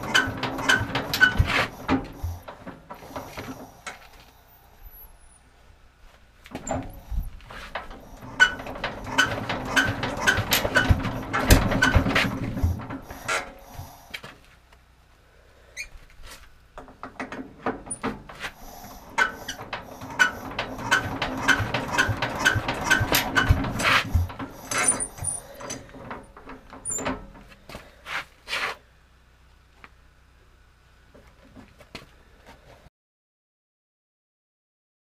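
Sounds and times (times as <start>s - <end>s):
engine crank clicking: 0.0s - 4.0s, 7.8s - 13.6s, 19.0s - 27.4s
loose knocks and clatters: 6.5s - 13.5s, 19.2s - 27.6s.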